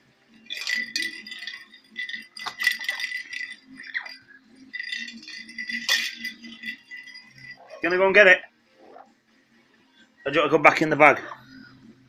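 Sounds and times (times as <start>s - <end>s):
bell toy rattling and jingling: 0.4s - 8.2s
steady ringing bell tone: 0.4s - 8.3s.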